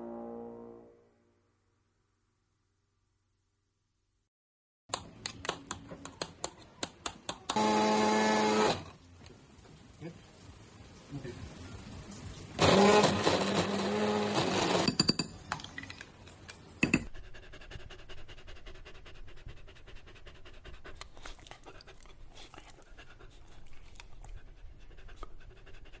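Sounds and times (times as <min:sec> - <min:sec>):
hand blender motor whirring: 0:07.5 - 0:08.9, 0:12.6 - 0:14.9
dog panting: 0:17.1 - 0:26.0.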